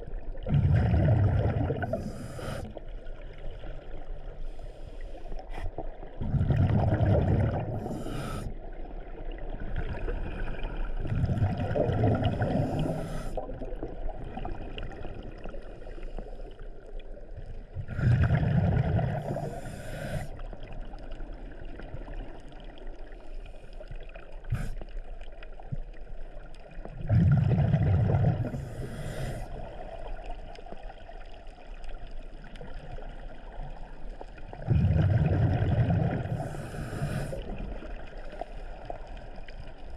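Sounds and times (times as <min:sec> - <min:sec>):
exhaled bubbles underwater: 0:00.0 - 0:04.6, 0:05.4 - 0:39.9
scuba regulator hiss: 0:07.9 - 0:08.5, 0:19.4 - 0:20.3, 0:28.6 - 0:29.5, 0:36.4 - 0:37.4.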